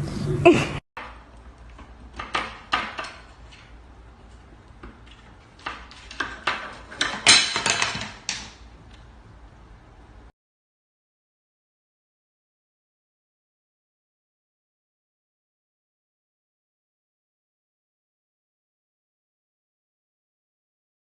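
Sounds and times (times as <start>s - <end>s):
wooden spoon knocking cabinet: 5.6s - 8.6s.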